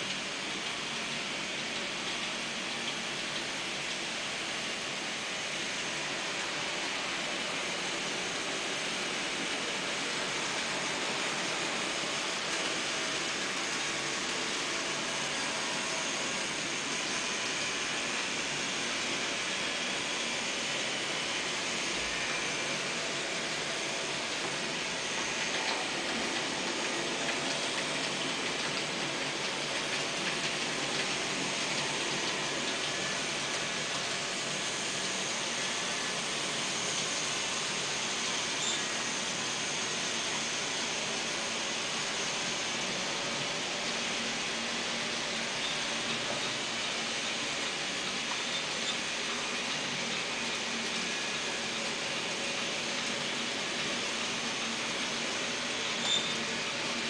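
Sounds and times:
model train running hiss: 0.0s - 57.0s.

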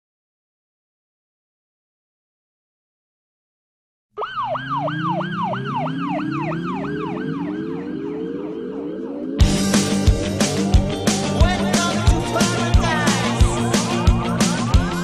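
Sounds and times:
siren sweeping: 4.2s - 12.1s
rising tone: 4.2s - 12.4s.

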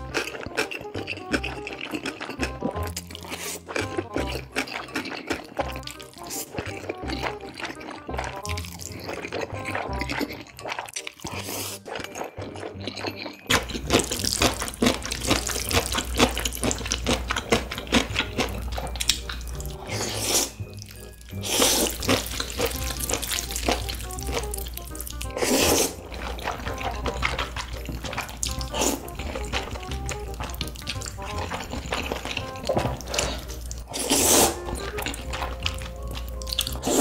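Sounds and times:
background music with low beat: 0.0s - 10.4s, 13.5s - 37.0s
wet noodle chewing and smacks: 0.0s - 37.0s
loud noodle slurps: 4.6s - 13.0s, 19.9s - 20.6s, 21.4s - 23.0s, 25.2s - 27.4s, 28.1s - 29.1s, 32.3s - 35.8s, 36.6s - 37.0s.

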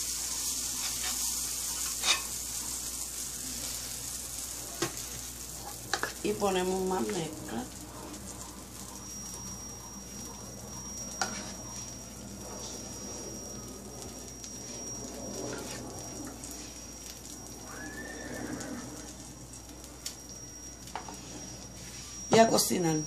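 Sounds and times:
batter sizzling on griddle: 0.0s - 23.0s
thin high whine: 0.0s - 23.0s
low hum: 6.9s - 22.3s.

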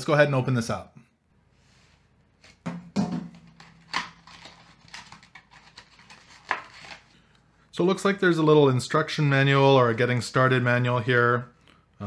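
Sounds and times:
packaging rustling: 3.4s - 7.2s.

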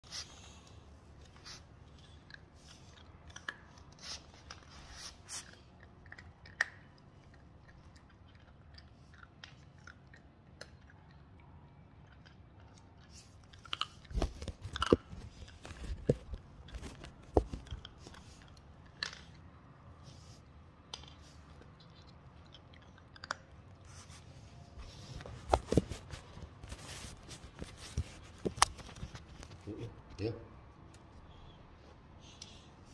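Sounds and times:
puppy chewing and crunching: 1.1s - 20.4s, 21.0s - 29.6s.

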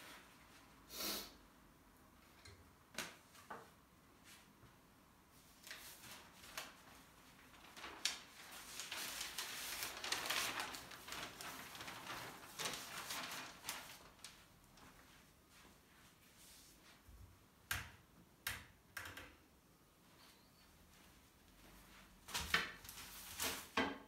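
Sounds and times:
crackly rustling: 5.6s - 15.7s.

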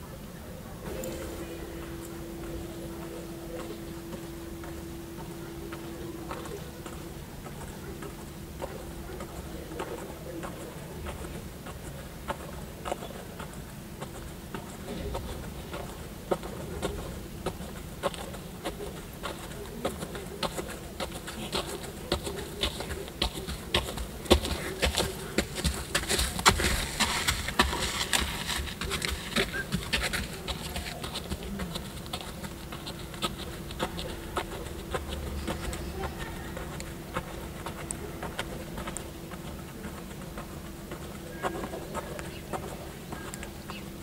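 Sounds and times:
steady buzzing hum: 0.0s - 44.0s
hooves crunching on gravel: 0.8s - 44.0s.

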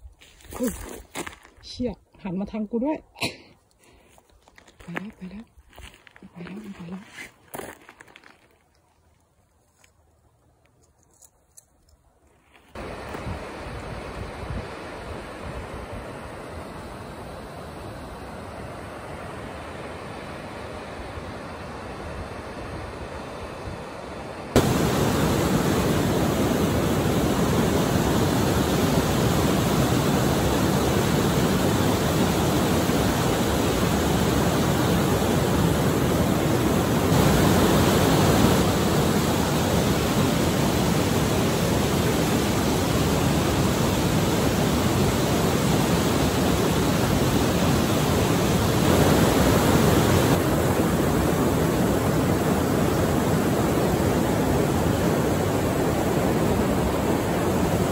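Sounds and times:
waterfall and rapids roaring: 12.7s - 57.9s.

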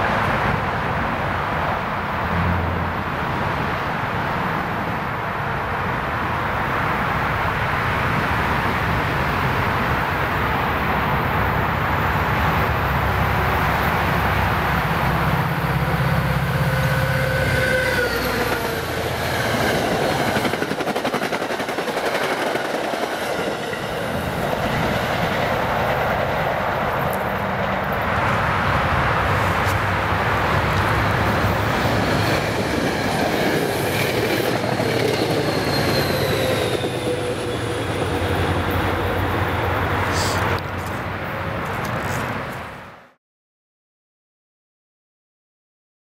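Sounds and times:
diesel locomotive engine: 0.0s - 43.0s
locomotive whine: 9.2s - 40.6s.

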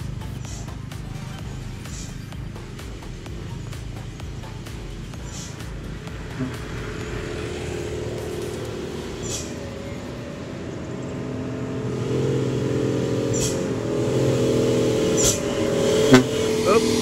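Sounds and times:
diesel truck engine approaching: 0.0s - 17.0s.

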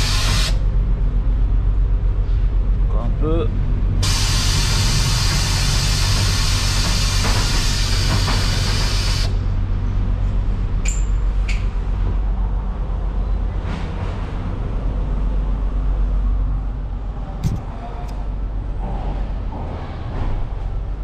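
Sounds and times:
loud hiss: 0.0s - 0.6s, 4.0s - 9.4s
low machine rumble: 0.0s - 21.0s
sharp knocks: 17.4s - 17.8s.

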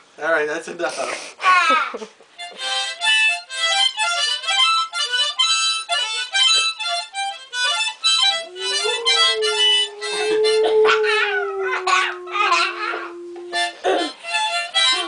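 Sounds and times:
harmonica rhythmic chords: 2.3s - 10.8s, 12.8s - 15.0s
dog howling: 8.2s - 14.2s.

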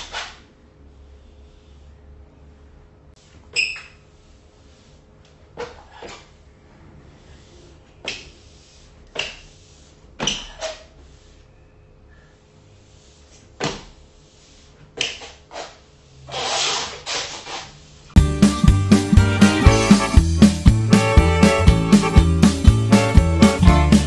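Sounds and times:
paper sliding on floor: 14.3s - 17.9s.

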